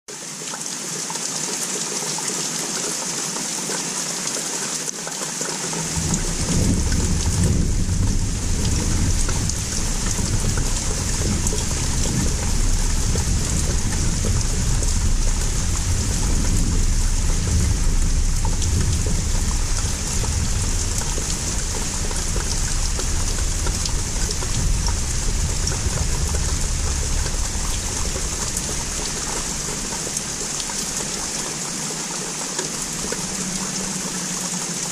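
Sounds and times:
rain falling: 0:00.1 - 0:34.9
distant thunder rumbling: 0:05.8 - 0:31.4.

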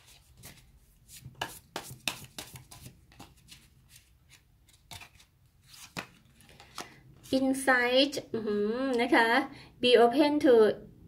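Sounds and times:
cards being shuffled: 0:00.0 - 0:07.4.

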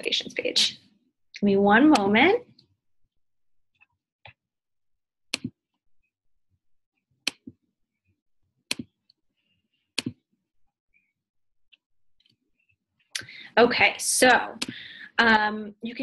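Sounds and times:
sharp computer clicks: 0:01.9 - 0:02.2.

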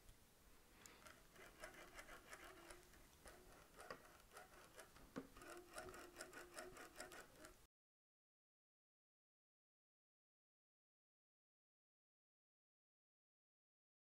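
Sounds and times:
wrist joint rubbing and clicking: 0:00.8 - 0:07.7.

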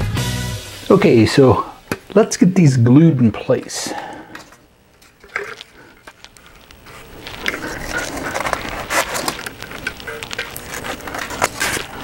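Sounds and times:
styrofoam scraping and crackling: 0:04.4 - 0:12.0.

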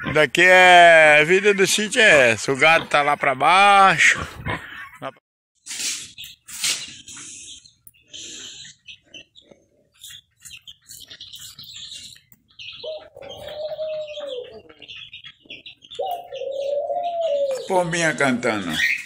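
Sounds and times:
small birds chirping: 0:00.0 - 0:19.0
dove cooing: 0:12.6 - 0:18.0.

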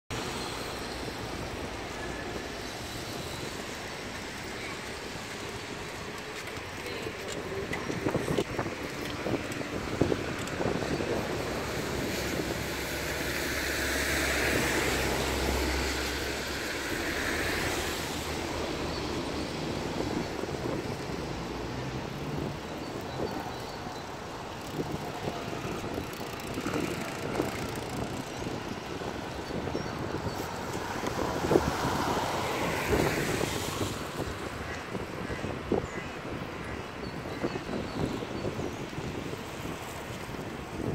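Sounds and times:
distant road traffic: 0:00.1 - 0:40.9
wind on microphone: 0:00.2 - 0:40.9
small clicks and rattles: 0:24.6 - 0:28.4.

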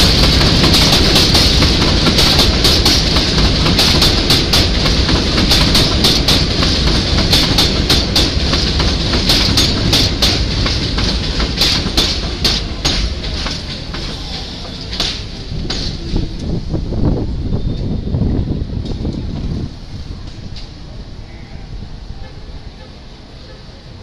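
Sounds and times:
wheels clicking over rail joints: 0:00.0 - 0:16.6
train rumbling and hissing: 0:00.0 - 0:24.0.

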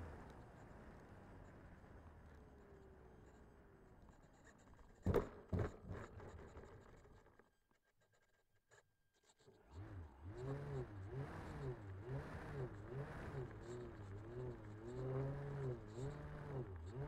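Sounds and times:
model plane motor and propeller: 0:09.2 - 0:17.0.

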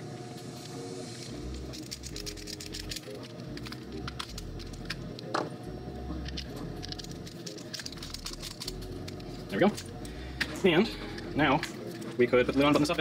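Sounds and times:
quiet background music: 0:00.0 - 0:13.0
small plastic parts clicking: 0:01.7 - 0:05.5, 0:06.2 - 0:10.5.

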